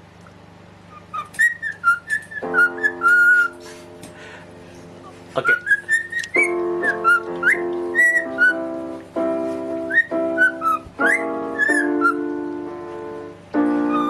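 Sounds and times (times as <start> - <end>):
cockatiel whistling: 0.9 - 3.6, 5.4 - 8.7, 9.8 - 12.3, 13.7 - 14.0
keyboard note ringing: 2.4 - 14.0.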